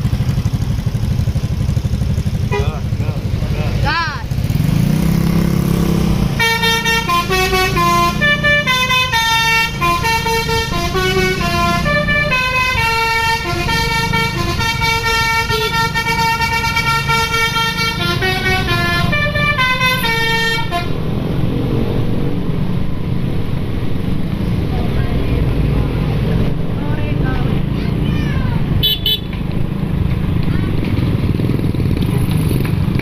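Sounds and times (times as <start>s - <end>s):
low engine rumble: 0.0s - 4.6s, 5.2s - 33.0s
musical bus horn playing tune: 2.5s - 2.8s, 6.4s - 21.0s, 28.8s - 29.4s.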